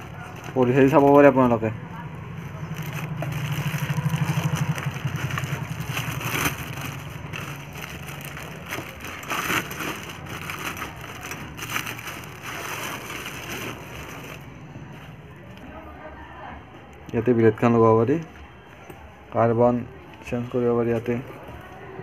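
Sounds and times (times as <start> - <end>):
plastic wrapping crinkling: 2.5 - 14.6.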